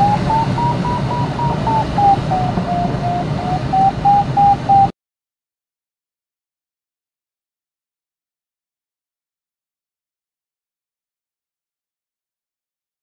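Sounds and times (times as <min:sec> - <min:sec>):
cockpit air noise: 0:00.0 - 0:04.9
variometer beeping: 0:00.0 - 0:04.9.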